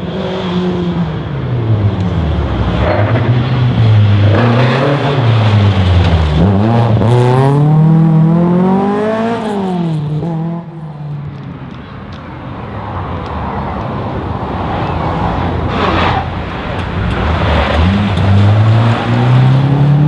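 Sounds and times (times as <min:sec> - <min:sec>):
rally car engine passing: 0:00.0 - 0:10.9, 0:14.6 - 0:20.0
crowd noise: 0:10.7 - 0:20.0.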